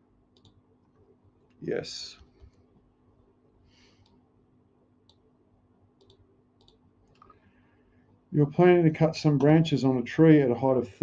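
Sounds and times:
faint computer mouse clicks: 0.3s - 0.6s, 4.0s - 4.2s, 5.0s - 5.3s, 6.0s - 7.4s.

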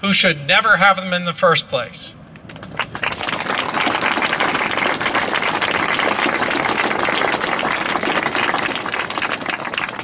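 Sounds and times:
crowd applauding: 2.5s - 10.0s.

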